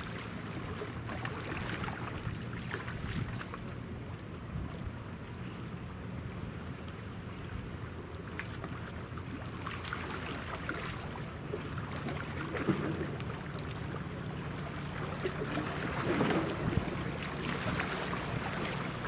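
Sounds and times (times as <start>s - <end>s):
warship engines humming: 10.9s - 19.0s.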